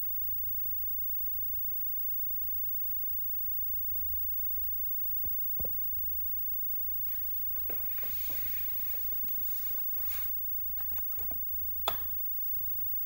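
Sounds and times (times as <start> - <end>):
soft rustling: 6.8 - 11.8.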